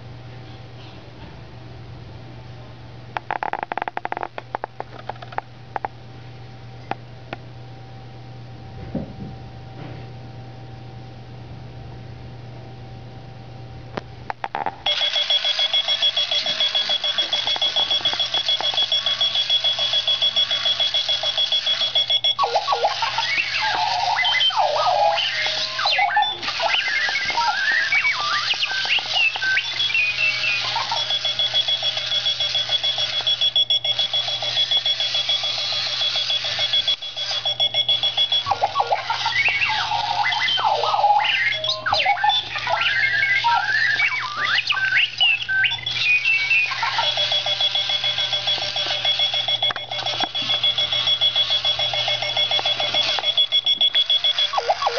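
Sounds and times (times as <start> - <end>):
alarm clock beeping: 14.9 - 54.9
robot-like chirps and warbles: 16.6 - 34.6, 35.2 - 54.9.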